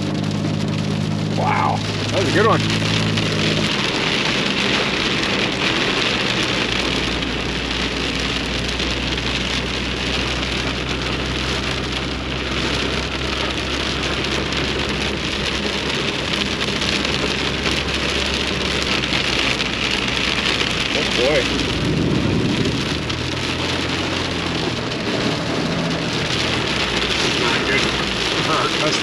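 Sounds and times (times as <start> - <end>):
heavy rain on windshield and roof: 0.0 - 29.0
truck engine drone: 0.0 - 29.0.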